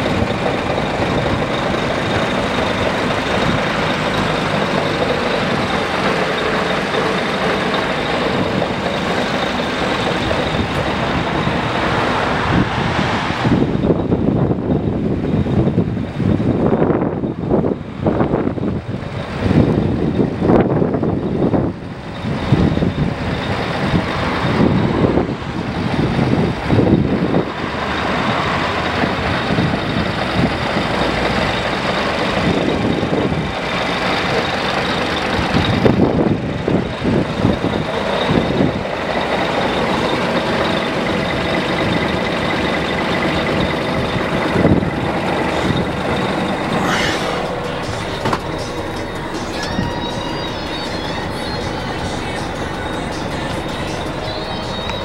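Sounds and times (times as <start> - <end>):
diesel truck engine idling: 0.0 - 55.0.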